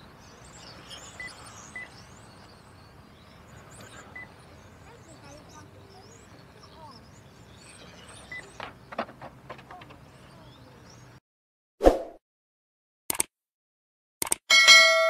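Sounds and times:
faint outdoor ambience: 0:00.0 - 0:11.2
quick click: 0:13.1 - 0:13.3, 0:14.2 - 0:14.4.

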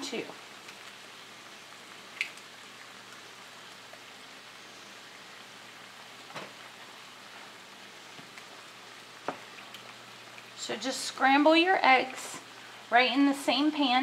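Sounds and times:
food sizzling in frying pan: 0:00.0 - 0:14.0
light knocks of pan: 0:09.2 - 0:09.5.

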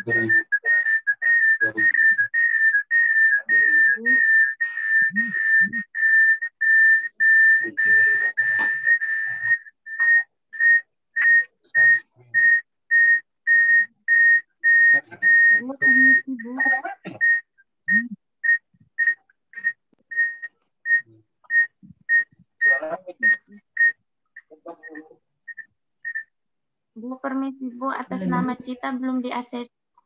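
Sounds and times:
high-pitched tone beeping: 0:00.0 - 0:02.6, 0:13.5 - 0:26.2.

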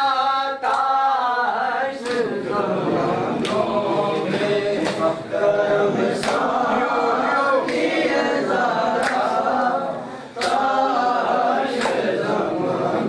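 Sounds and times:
men chanting in unison: 0:00.0 - 0:13.0
chest-beating slaps: 0:04.8 - 0:05.1, 0:06.2 - 0:06.6, 0:09.0 - 0:09.4, 0:10.4 - 0:10.7, 0:11.7 - 0:12.2.

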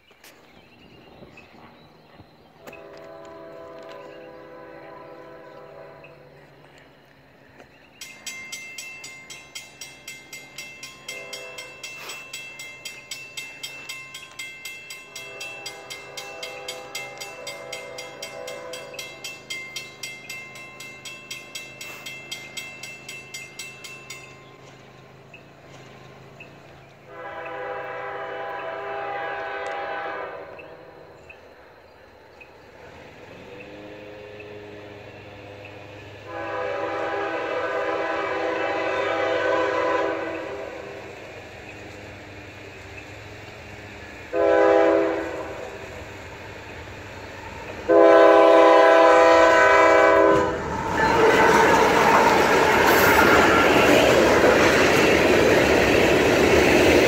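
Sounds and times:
locomotive air horn blasts: 0:02.6 - 0:06.4, 0:11.1 - 0:12.1, 0:15.3 - 0:19.0, 0:27.1 - 0:31.0, 0:36.1 - 0:41.1, 0:44.3 - 0:45.8, 0:47.8 - 0:52.0
crossing warning bell ringing: 0:02.6 - 0:57.0.

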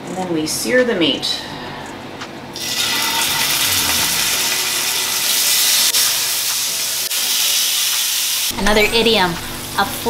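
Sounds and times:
chicken sizzling in hot oil: 0:02.6 - 0:08.6.

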